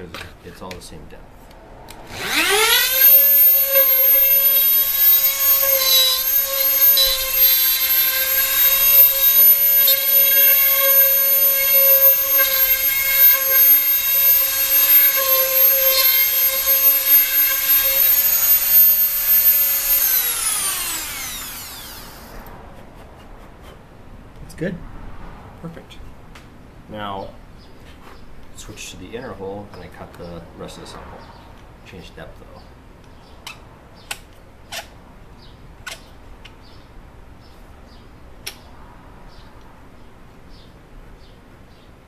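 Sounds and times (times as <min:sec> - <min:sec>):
rotary tool high whine: 0:01.9 - 0:22.5.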